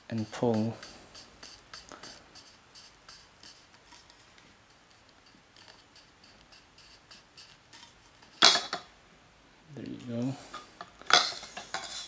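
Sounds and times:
light ticks and scrapes of metal: 10.0s - 12.0s.

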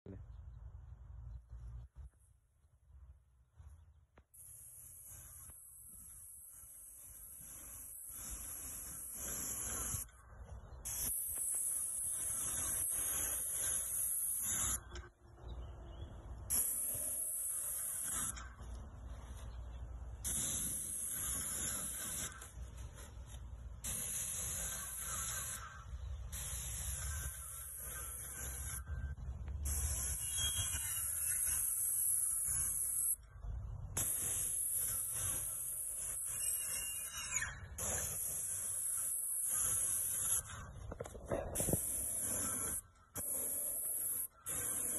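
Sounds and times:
paint sprayer hissing: 4.3s - 15.1s, 16.4s - 33.2s, 34.0s - 44.9s.

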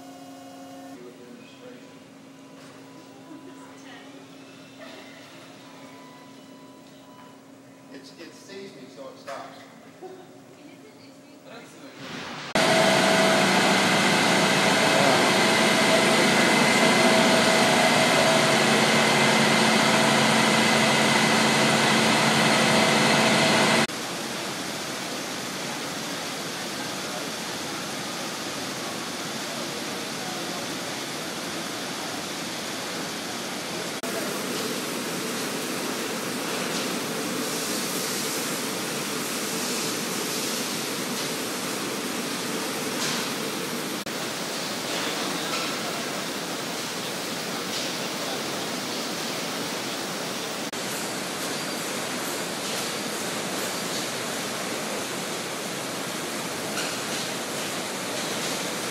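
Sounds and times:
machinery hum tones: 0.0s - 9.2s, 9.9s - 46.3s
printing press machinery din: 12.0s - 48.7s.

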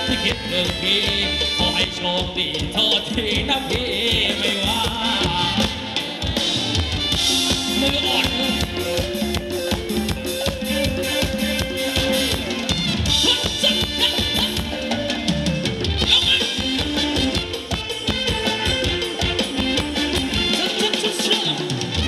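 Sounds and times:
drum kit fast beat: 0.0s - 22.0s
live band dance music: 0.0s - 22.0s.

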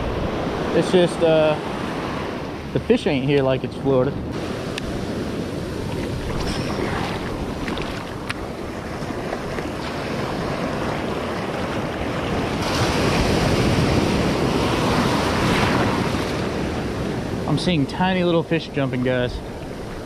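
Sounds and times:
wind buffeting microphone: 0.0s - 18.2s
ocean surf breaking: 0.0s - 20.0s.

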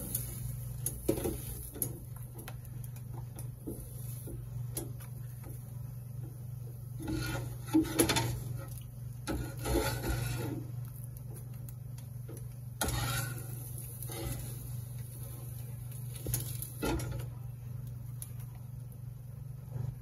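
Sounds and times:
steady low hum: 0.0s - 20.0s
utensil scraping plastic plate: 9.3s - 10.7s.

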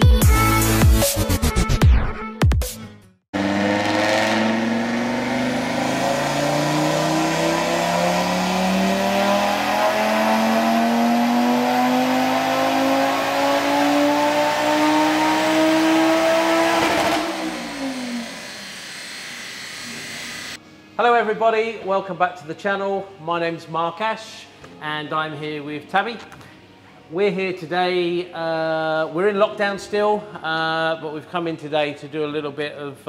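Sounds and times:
car engine revving on dyno: 3.4s - 20.6s.

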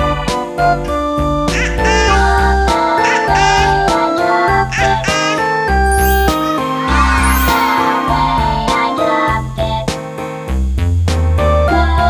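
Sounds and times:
keyboard melody with bass and beat: 0.1s - 10.0s.

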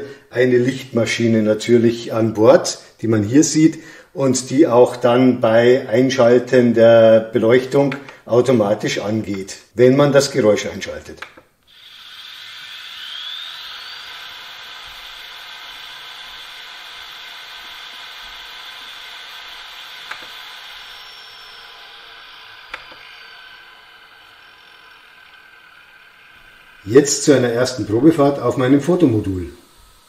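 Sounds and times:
short clicks: 7.9s - 8.2s, 11.1s - 11.5s.

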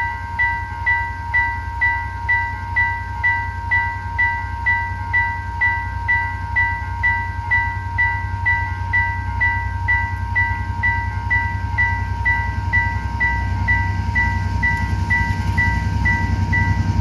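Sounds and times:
low steady rumble: 0.0s - 17.0s
repeating electronic chime: 0.0s - 17.0s
steady warning tone: 0.0s - 17.0s.

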